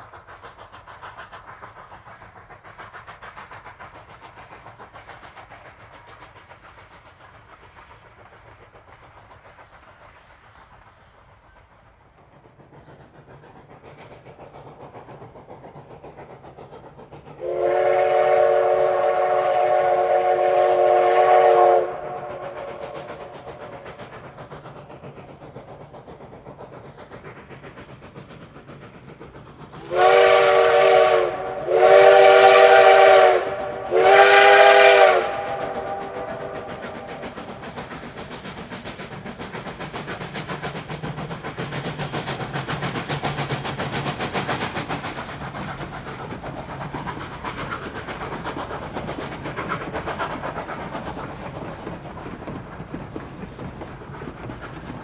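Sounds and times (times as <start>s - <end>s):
steam locomotive working: 0.0s - 55.0s
wheels clicking on rails: 0.0s - 55.0s
steam locomotive chime whistle: 17.4s - 22.9s, 29.9s - 37.0s.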